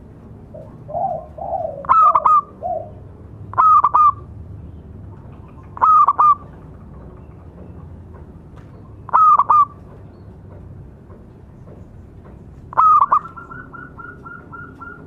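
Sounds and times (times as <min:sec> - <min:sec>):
dove cooing: 0:00.5 - 0:04.3, 0:05.3 - 0:06.9, 0:09.1 - 0:09.8, 0:12.7 - 0:15.0.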